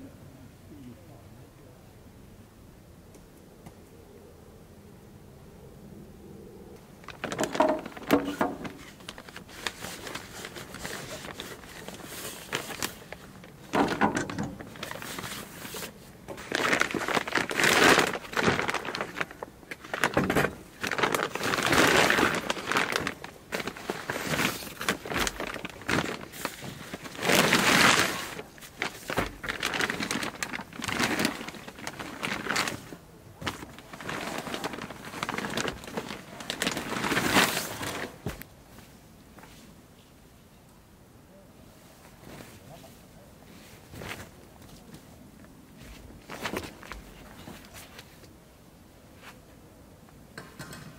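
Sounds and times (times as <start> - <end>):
nylon bags rustling: 7.0 - 38.4, 45.8 - 48.2
items knocking on wooden deck: 13.7 - 14.7.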